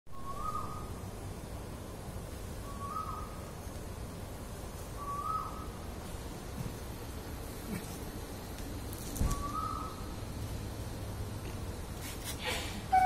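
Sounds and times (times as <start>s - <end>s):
bird calling: 0.1s - 1.0s, 2.6s - 3.7s, 4.9s - 5.8s, 9.2s - 10.1s, 12.4s - 13.0s
steady low rumble: 0.1s - 12.9s.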